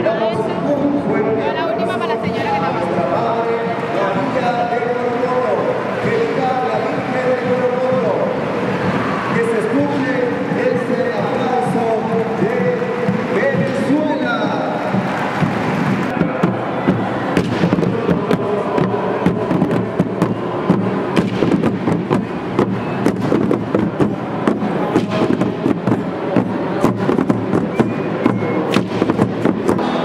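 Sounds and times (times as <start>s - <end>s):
firecrackers banging: 5.1s - 30.0s.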